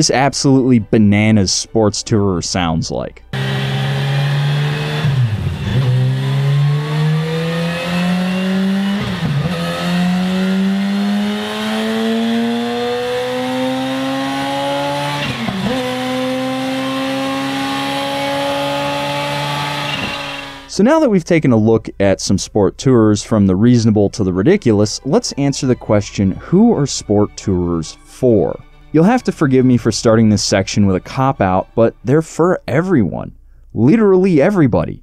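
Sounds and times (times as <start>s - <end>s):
motorcycle engine revving: 3.3s - 20.8s.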